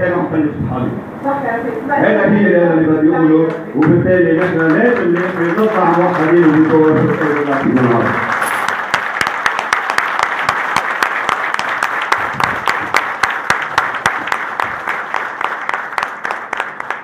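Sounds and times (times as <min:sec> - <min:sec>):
audience applauding: 0:03.8 - 0:17.0.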